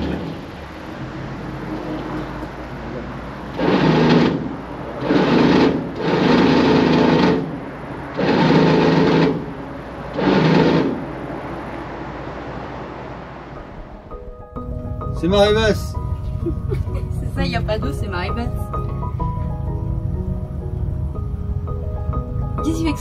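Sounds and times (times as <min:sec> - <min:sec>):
low hum: 0:00.0 - 0:23.0.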